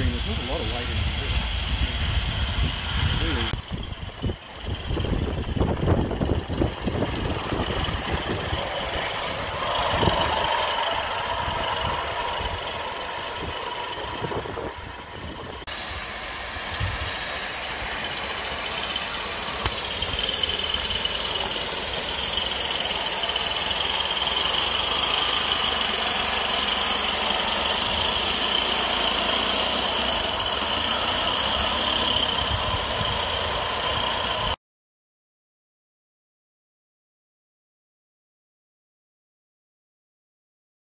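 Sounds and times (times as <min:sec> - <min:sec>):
train wheels rolling on rails: 0:00.0 - 0:34.6
steady high-pitched ring: 0:03.2 - 0:34.6.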